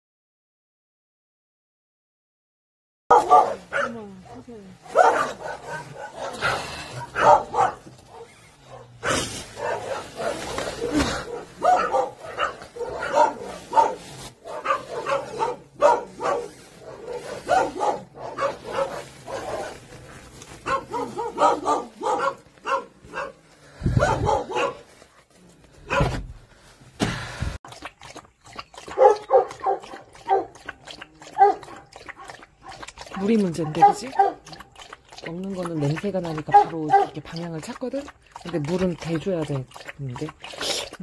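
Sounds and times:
dog barking: 3.1s - 19.8s, 20.6s - 24.9s, 25.8s - 26.2s, 28.9s - 30.6s, 31.3s - 32.8s, 33.6s - 34.5s, 36.5s - 37.2s.

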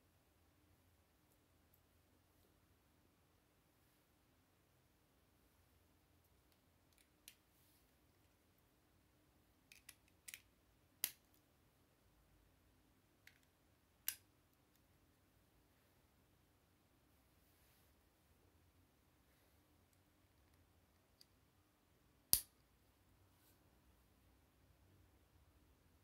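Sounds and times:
plastic bricks clicking together: 9.7s - 11.2s.

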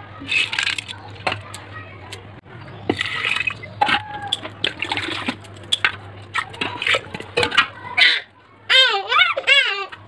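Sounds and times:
lentils splashing into water: 2.9s - 7.7s.

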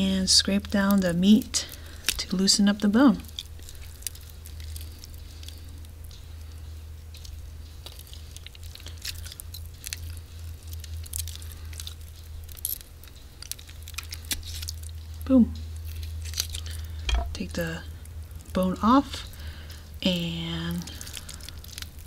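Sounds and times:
small clicks and crackles: 0.0s - 22.0s
wet squishing of raw meat: 3.2s - 6.6s, 7.2s - 15.0s, 20.8s - 22.0s.

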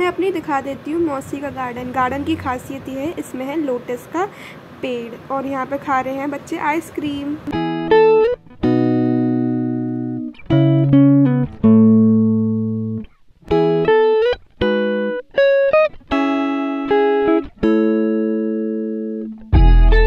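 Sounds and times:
plucked string melody: 7.5s - 20.0s.

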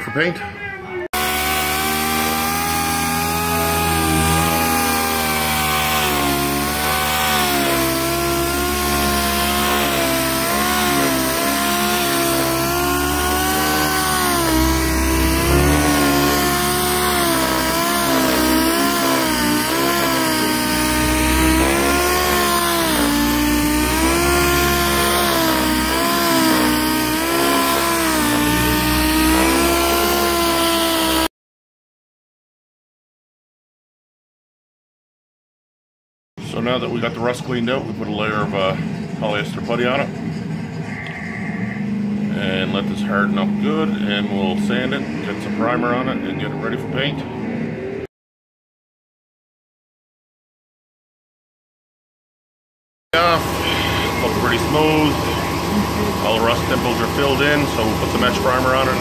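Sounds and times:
pneumatic sander on sheet metal: 1.2s - 31.3s, 53.2s - 59.0s.

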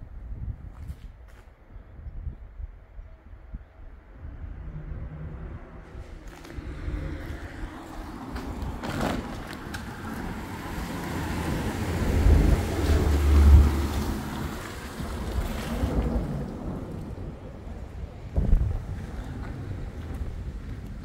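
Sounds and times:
wind buffeting microphone: 0.0s - 21.0s
rain: 5.8s - 21.0s.

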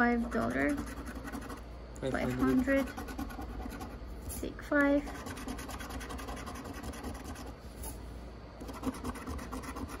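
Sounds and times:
scratching a lottery ticket: 0.3s - 1.6s, 2.2s - 4.0s, 5.0s - 7.5s, 8.6s - 10.0s.

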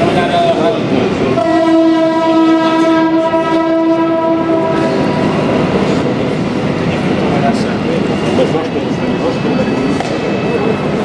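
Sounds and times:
model train running on track: 0.0s - 11.0s
model train horn blast: 1.4s - 5.0s.

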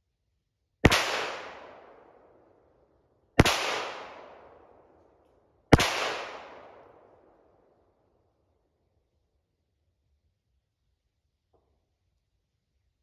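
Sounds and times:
pistol shots with echo: 0.8s - 2.4s, 3.4s - 5.0s, 5.7s - 7.5s.

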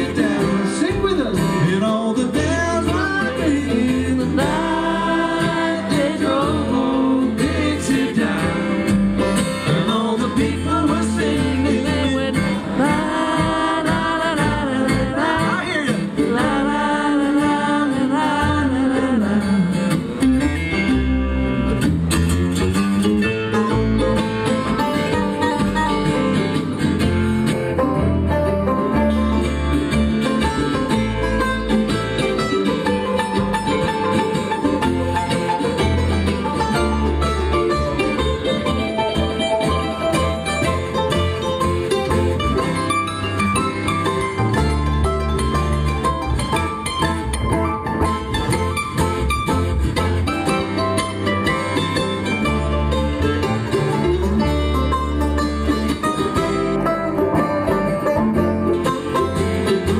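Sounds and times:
person singing: 0.0s - 8.9s, 9.6s - 20.6s
acoustic guitar: 0.0s - 59.9s
banjo: 0.0s - 59.9s
mandolin: 0.0s - 59.9s
upright double bass: 0.0s - 59.9s.

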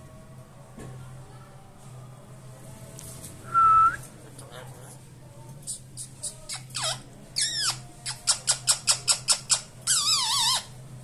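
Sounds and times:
parakeet chirping and trilling: 5.7s - 10.8s.

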